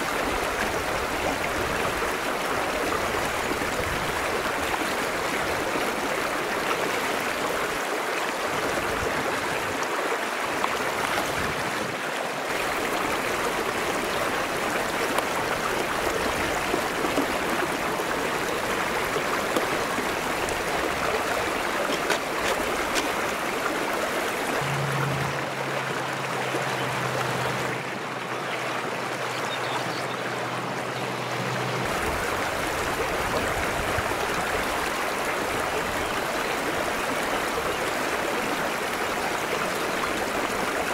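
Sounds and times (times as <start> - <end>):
stream flowing over rocks: 0.0 - 40.9
low steady hum: 24.6 - 28.4.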